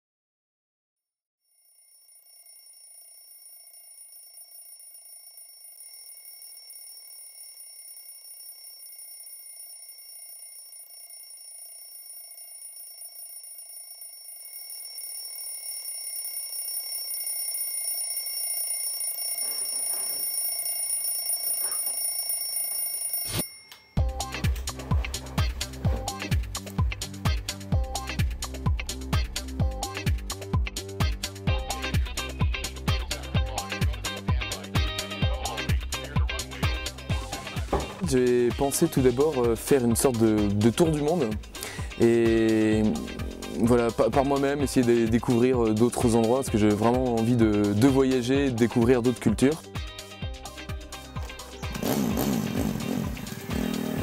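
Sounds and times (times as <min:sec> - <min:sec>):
alarm ringing: 0:01.5 - 0:24.5.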